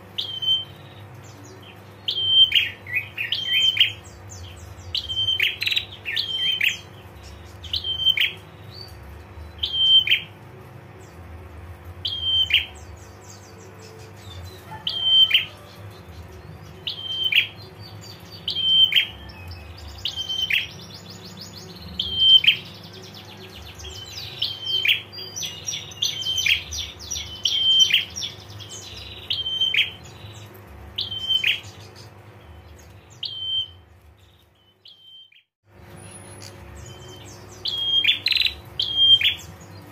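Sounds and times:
bird calling sharp notes: 0:02.0 - 0:10.4, 0:12.0 - 0:21.0, 0:22.0 - 0:30.3, 0:31.0 - 0:33.9, 0:34.7 - 0:39.6
bird rapid trilled notes: 0:11.1 - 0:33.9, 0:34.9 - 0:39.9.

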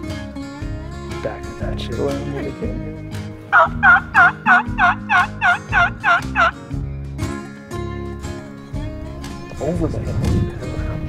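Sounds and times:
turkey call yelps: 0:03.5 - 0:06.6.

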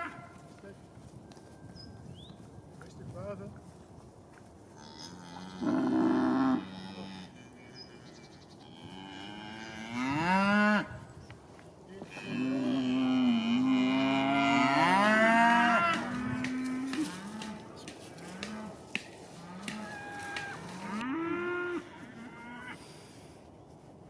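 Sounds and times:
cattle mooing: 0:04.8 - 0:10.9, 0:12.1 - 0:18.8, 0:19.4 - 0:22.8.

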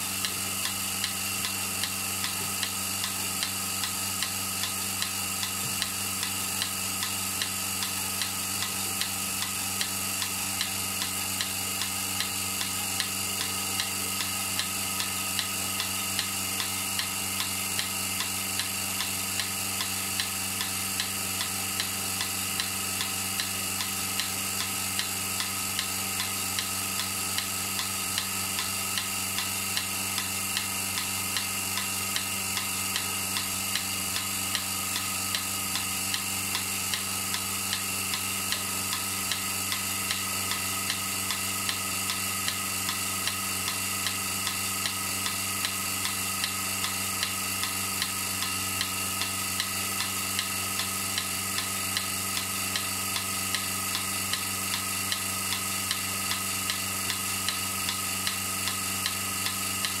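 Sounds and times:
milking machine pulsator ticking: 0:00.0 - 1:00.0
vacuum pump humming: 0:00.0 - 1:00.0.

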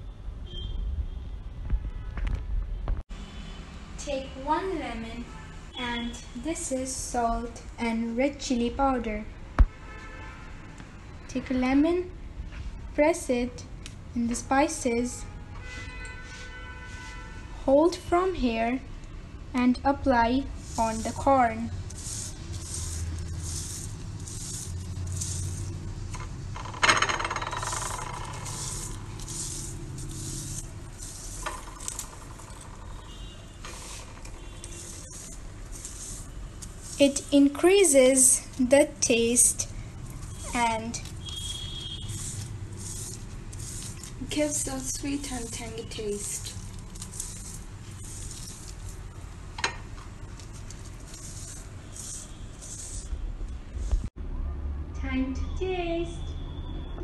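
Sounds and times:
lemon rasping over corn cob: 0:20.4 - 0:25.9, 0:27.6 - 0:49.1, 0:50.2 - 0:53.2.

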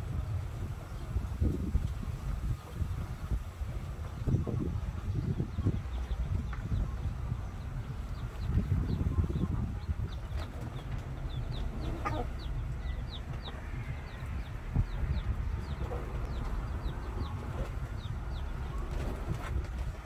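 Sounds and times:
baby chicks peeping: 0:00.0 - 0:20.0
low rumble: 0:00.0 - 0:20.0
hen clucking: 0:04.0 - 0:19.9.

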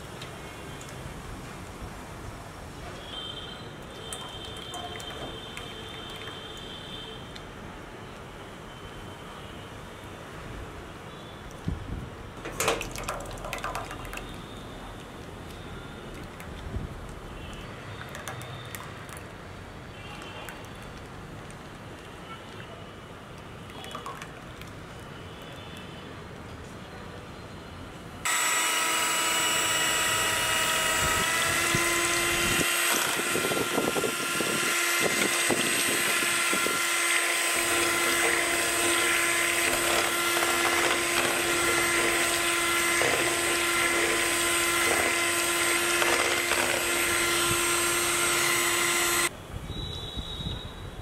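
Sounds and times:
blender motor running: 0:28.3 - 0:49.3.

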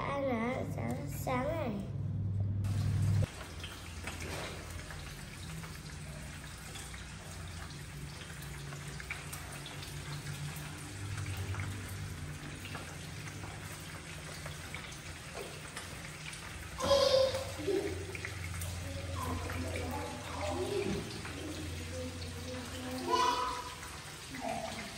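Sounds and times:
steady low hum: 0:00.0 - 0:03.3.

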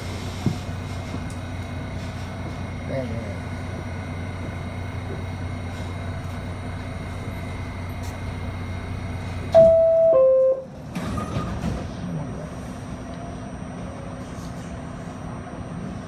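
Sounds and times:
subway car hum: 0:00.0 - 0:16.0
two-tone door chime: 0:09.6 - 0:10.6
doors shutting clatter: 0:10.8 - 0:12.0.

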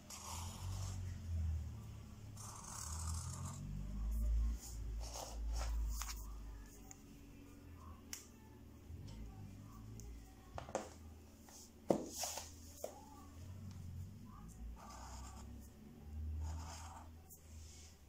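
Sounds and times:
pen scratching on paper: 0:00.1 - 0:01.1, 0:02.4 - 0:03.6, 0:05.0 - 0:06.2, 0:14.8 - 0:15.7, 0:16.3 - 0:17.3.

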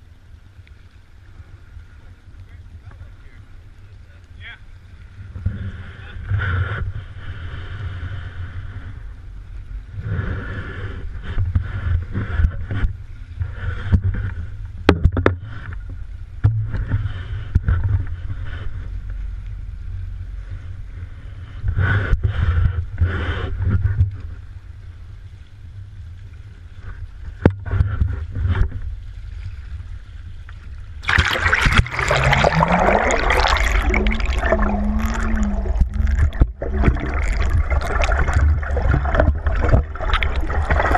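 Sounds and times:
underwater hiss and bubbling: 0:05.0 - 0:24.9, 0:26.1 - 0:40.9
lapping water: 0:31.0 - 0:40.9
wind buffeting: 0:31.0 - 0:40.9.

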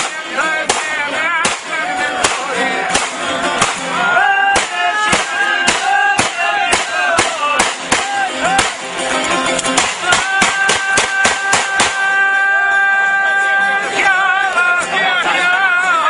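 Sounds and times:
pistol shots: 0:00.0 - 0:04.0, 0:04.6 - 0:08.8, 0:09.7 - 0:12.1
folk music with singing: 0:00.0 - 0:16.0.

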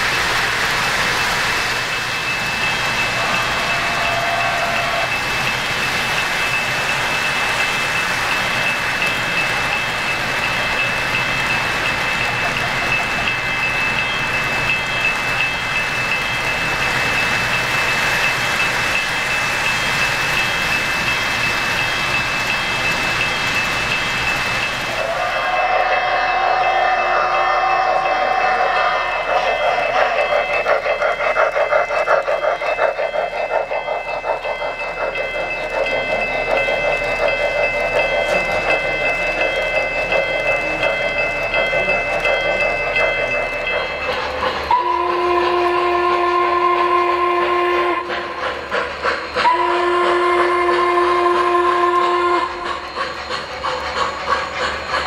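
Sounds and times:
model steam train chuffing: 0:00.0 - 0:55.0
wheels rolling on track: 0:00.0 - 0:55.0
bell dinging: 0:25.4 - 0:45.0
model train wheels clattering: 0:28.4 - 0:55.0.

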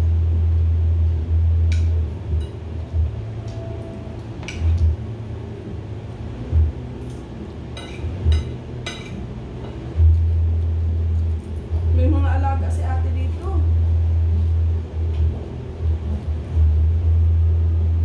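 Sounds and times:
steady low rumble: 0:00.0 - 0:18.0
tableware clinking: 0:07.7 - 0:09.8.

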